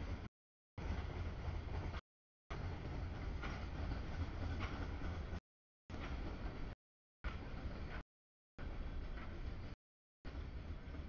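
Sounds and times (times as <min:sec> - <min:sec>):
freight train wheels rumbling on rail: 0:00.0 - 0:08.0.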